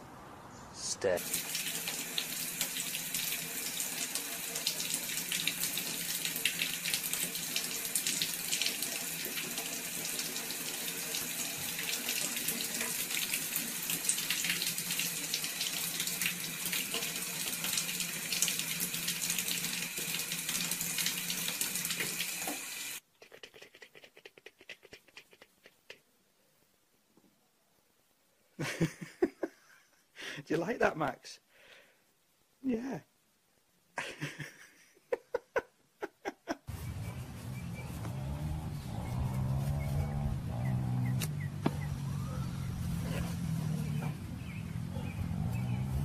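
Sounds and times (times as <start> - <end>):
faucet running into tub: 1.2 - 23.0.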